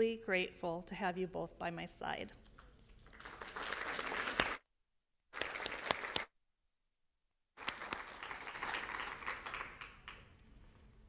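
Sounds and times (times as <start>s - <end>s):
audience applauding: 3.1s - 4.6s, 5.4s - 6.3s, 7.6s - 10.4s.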